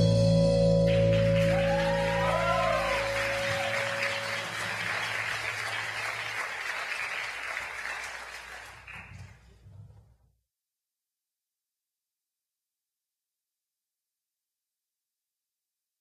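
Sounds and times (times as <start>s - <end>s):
band chord ringing: 0.0s - 4.8s
audience applauding: 0.9s - 9.6s.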